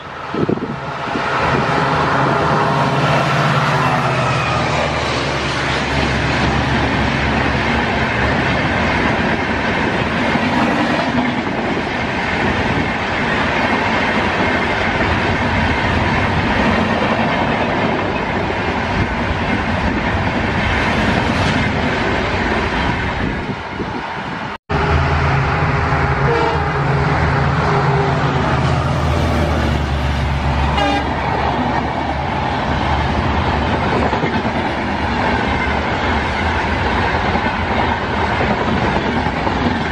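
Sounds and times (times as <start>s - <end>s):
train wheels rumbling and clattering: 0.0s - 24.6s, 27.1s - 39.9s
train horn: 24.7s - 31.2s.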